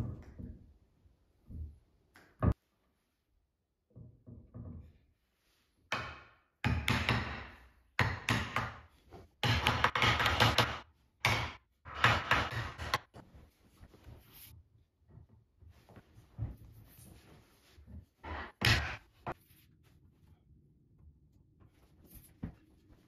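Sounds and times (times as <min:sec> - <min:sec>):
hammer striking wooden block: 0:09.4 - 0:13.1.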